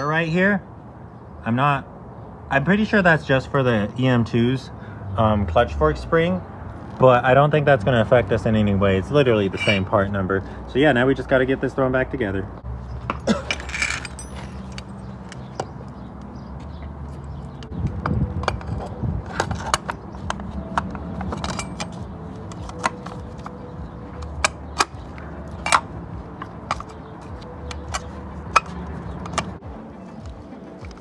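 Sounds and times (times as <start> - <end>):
metal clinks and clicks: 9.6 - 9.9, 13.1 - 15.5, 20.6 - 23.6.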